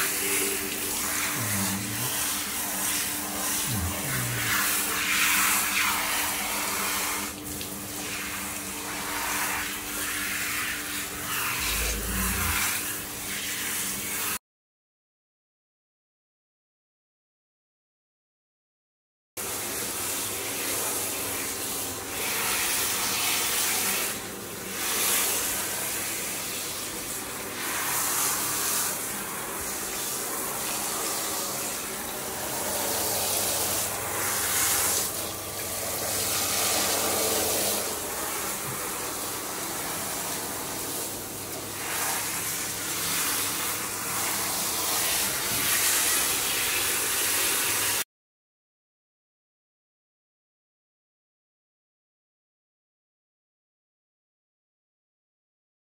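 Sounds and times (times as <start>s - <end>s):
shower head spraying water: 0.0s - 14.3s, 24.8s - 48.0s.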